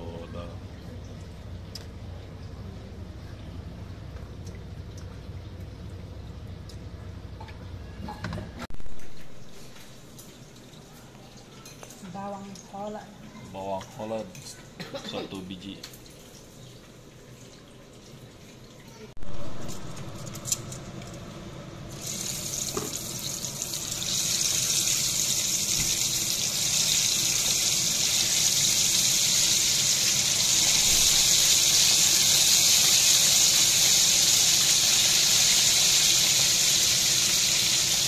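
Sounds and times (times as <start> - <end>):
oil sizzling in a wok: 21.9 - 38.0.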